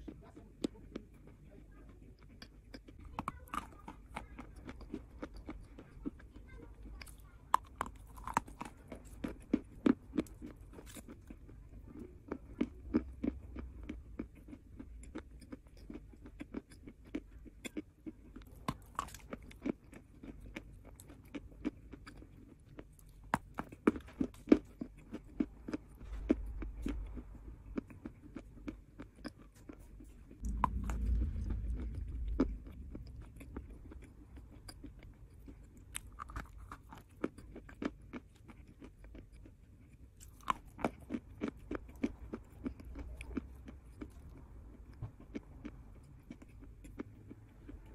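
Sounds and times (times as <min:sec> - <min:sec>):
muffled low rumble: 0:25.3 - 0:37.8, 0:40.0 - 0:47.9
chalk being chewed: 0:26.9 - 0:44.5.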